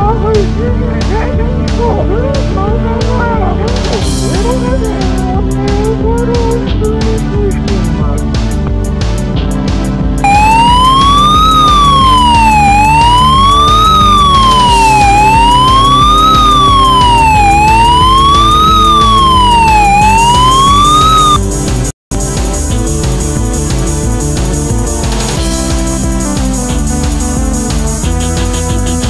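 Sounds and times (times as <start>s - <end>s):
background music: 0.0s - 29.0s
wailing siren: 10.2s - 21.4s.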